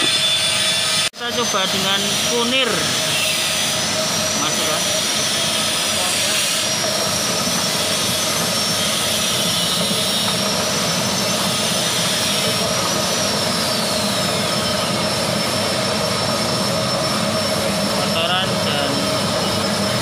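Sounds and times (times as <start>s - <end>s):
washing machine whining and churning: 0.0s - 20.0s.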